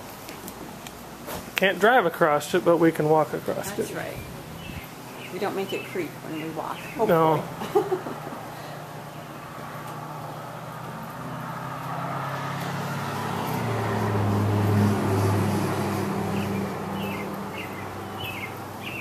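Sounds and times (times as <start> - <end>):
vehicle engine passing: 1.8 - 19.0
bird chirping: 4.0 - 7.5, 16.3 - 19.0.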